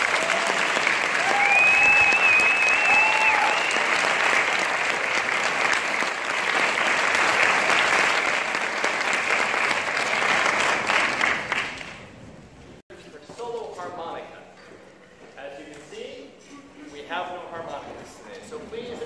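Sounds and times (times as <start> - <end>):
crowd cheering: 0.0 - 11.8
audience applauding: 0.0 - 12.2
high wavering whistle: 1.4 - 3.9.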